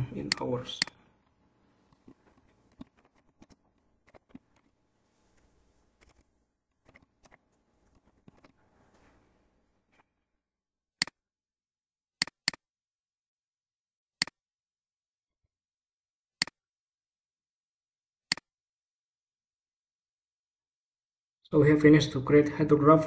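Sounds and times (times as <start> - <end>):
computer mouse clicks: 0.2 - 1.0, 1.9 - 4.8, 5.4 - 9.1, 12.2 - 12.6, 18.3 - 18.5.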